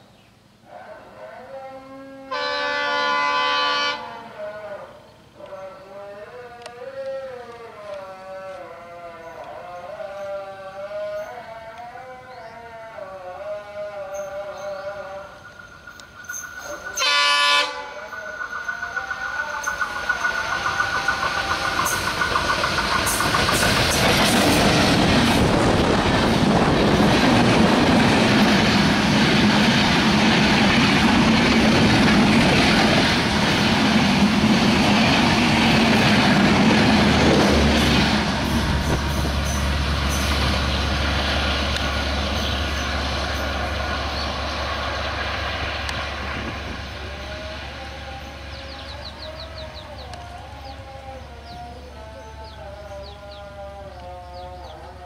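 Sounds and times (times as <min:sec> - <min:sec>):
train horn: 0:00.7 - 0:05.0, 0:16.7 - 0:18.4
train rushing past on rails: 0:13.4 - 0:55.0.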